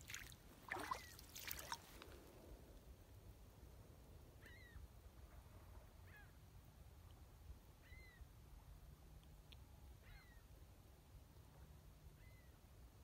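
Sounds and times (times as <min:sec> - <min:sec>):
gull calls: 0:04.4 - 0:04.8.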